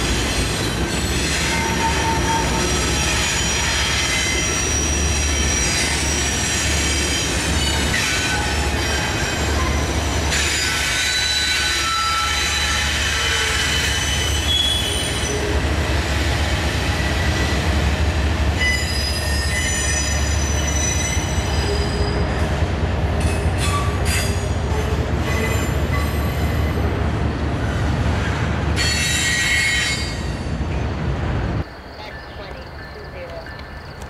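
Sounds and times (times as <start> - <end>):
train rumbling past: 0.0 - 34.0
wheels squealing: 0.2 - 15.6, 18.6 - 22.4.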